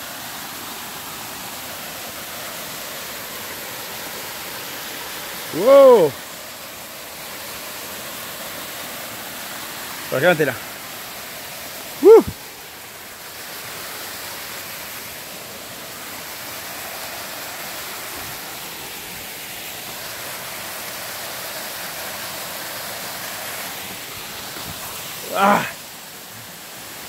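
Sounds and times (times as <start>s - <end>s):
waterfall rushing: 0.0s - 27.0s
high-pitched voice cry: 5.6s - 6.1s, 12.0s - 12.3s, 25.3s - 25.8s.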